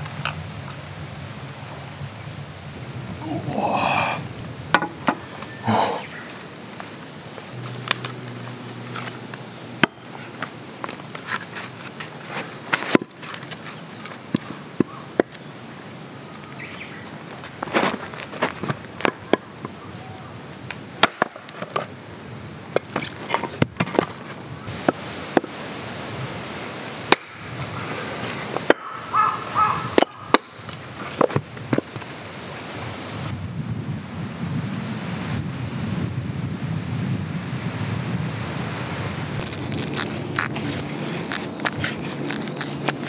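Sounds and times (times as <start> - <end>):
small birds chirping: 5.2 - 18.3, 19.2 - 20.8, 39.4 - 43.0
hatchet splitting wood: 21.0 - 21.9, 27.1 - 27.6, 30.0 - 32.0
split wood clattering down: 21.0 - 22.0.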